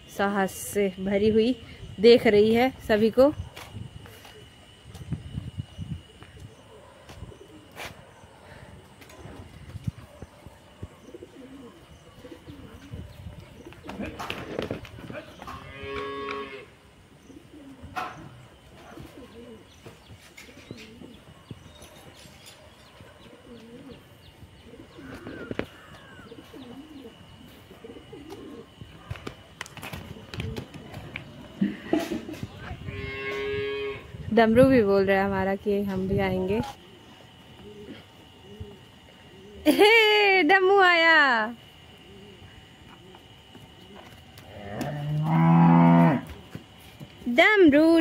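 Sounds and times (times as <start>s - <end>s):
cow mooing: 15.6s - 16.7s, 32.9s - 34.1s, 44.5s - 46.3s.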